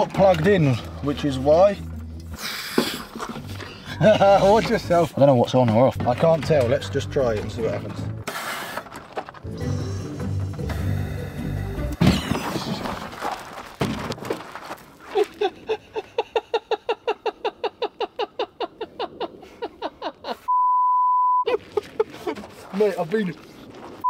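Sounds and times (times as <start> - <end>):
censor bleep: 20.5 - 21.4.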